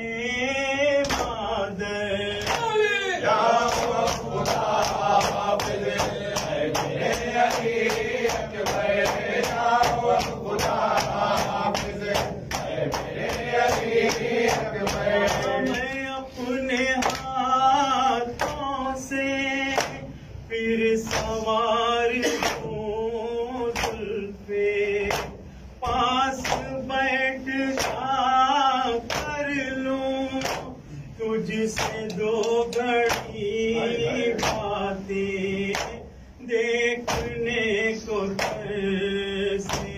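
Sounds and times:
group singing along: 0.0s - 39.9s
men singing a lament: 0.0s - 39.9s
hand slaps on bare chests: 1.0s - 1.4s, 3.7s - 15.8s, 23.7s - 24.0s, 27.8s - 28.0s, 30.4s - 30.7s, 35.7s - 36.0s, 37.1s - 37.4s, 38.4s - 38.7s, 39.7s - 39.9s.

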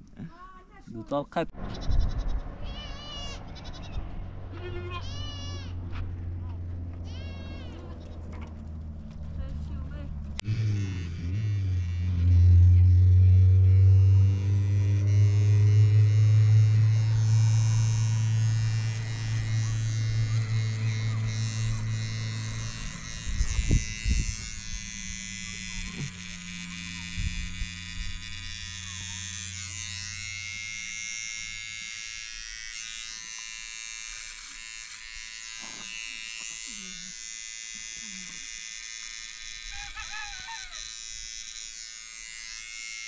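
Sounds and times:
electric hair clippers buzzing: 10.3s - 43.0s.

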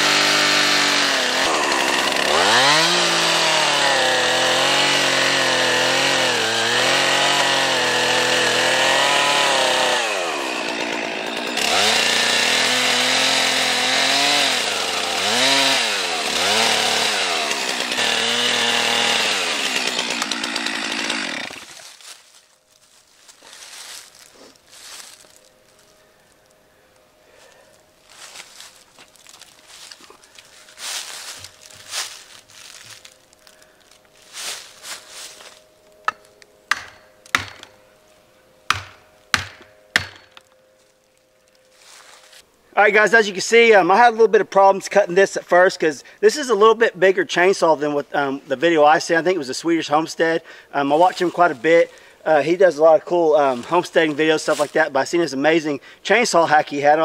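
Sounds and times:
chainsaw cutting wood: 0.0s - 22.2s, 28.2s - 33.6s, 34.2s - 37.8s, 38.7s - 40.5s
axe knocking on wedge: 36.1s - 37.6s.

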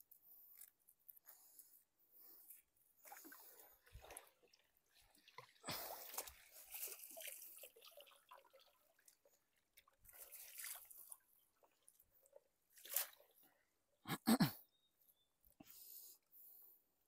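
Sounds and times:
water dripping and splashing: 3.0s - 13.4s.

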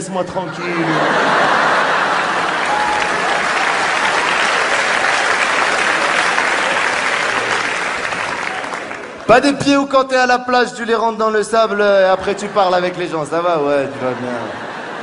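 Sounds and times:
audience applauding: 0.8s - 9.4s.

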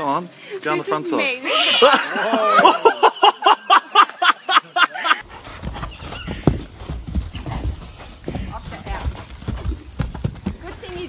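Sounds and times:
horse hooves on dirt: 5.2s - 11.0s.

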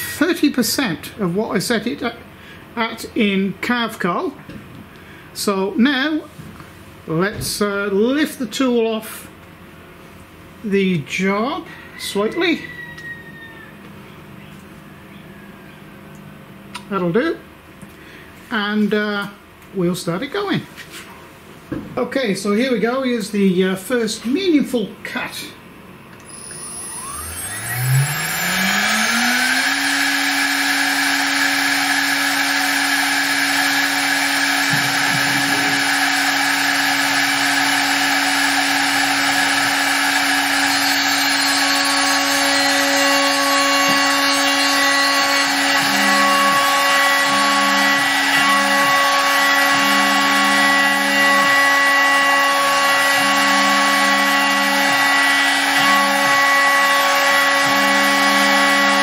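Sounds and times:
cnc router spindle whine: 26.2s - 59.0s
cutter milling wood: 26.2s - 59.0s.

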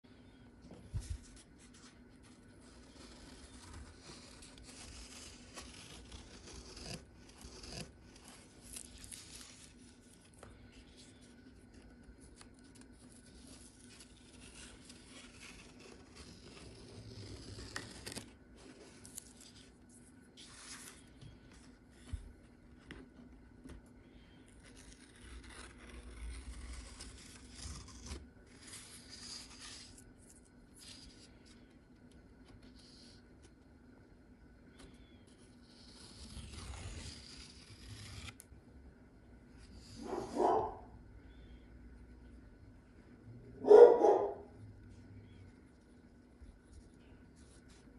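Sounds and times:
masking tape peeling off paper: 2.6s - 19.8s, 24.6s - 31.6s, 35.6s - 38.4s.

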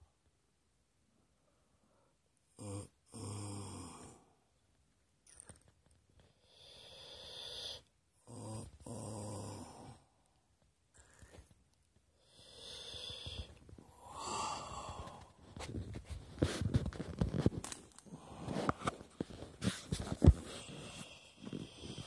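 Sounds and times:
heavy breathing: 12.1s - 17.0s, 18.0s - 22.0s.

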